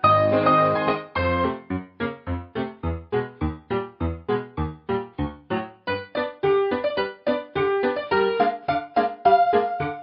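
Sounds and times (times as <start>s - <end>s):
piano repeated chords: 0.0s - 10.0s.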